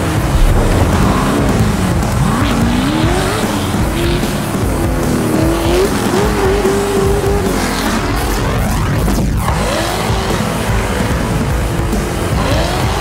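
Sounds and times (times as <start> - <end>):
buggy engine revving: 0.3 - 13.0.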